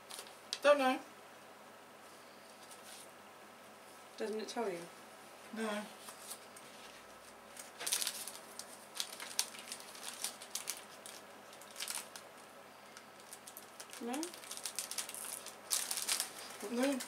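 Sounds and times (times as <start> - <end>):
plastic wrapping crinkling: 0.0 - 0.6, 6.1 - 17.0.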